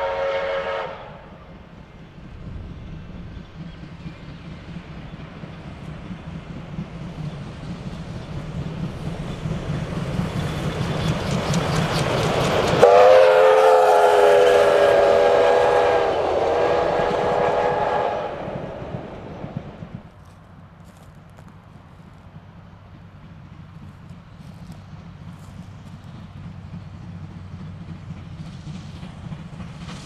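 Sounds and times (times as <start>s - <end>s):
steam whistle: 0.0s - 1.4s, 12.8s - 18.8s
steam locomotive rail clatter: 0.0s - 30.0s.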